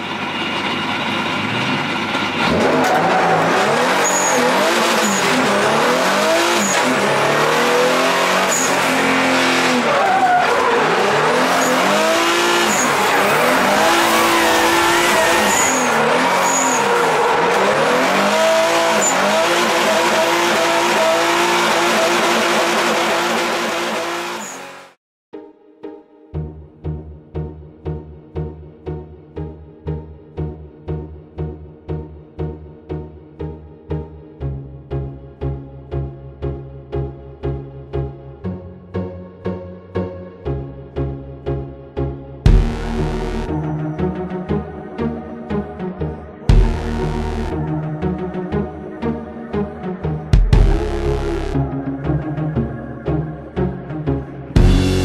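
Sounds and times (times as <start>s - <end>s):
car engine revving: 0.0s - 25.0s, 42.5s - 55.0s
tyres skidding: 0.0s - 25.0s.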